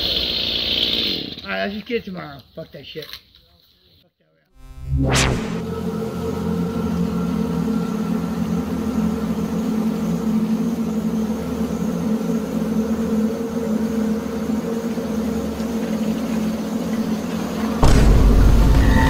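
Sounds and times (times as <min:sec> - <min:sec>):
low mechanical hum: 0:04.6 - 0:19.0.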